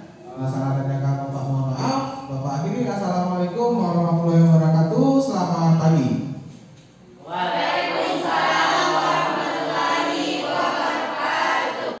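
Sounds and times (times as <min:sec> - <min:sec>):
students chanting in unison: 0:07.2 - 0:12.0.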